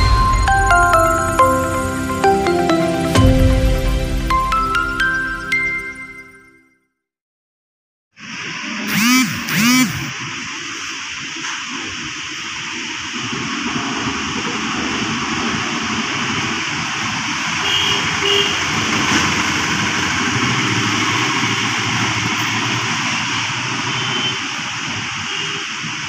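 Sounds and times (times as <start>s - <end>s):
machinery running: 8.9s - 10.1s.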